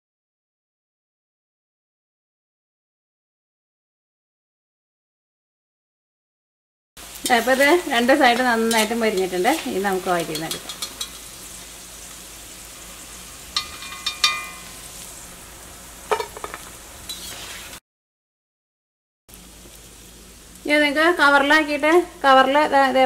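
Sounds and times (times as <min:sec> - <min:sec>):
fritters sizzling in hot oil: 0:07.0 - 0:17.8, 0:19.3 - 0:23.0
steel spatula clinking on metal: 0:08.6 - 0:11.3, 0:13.5 - 0:14.9.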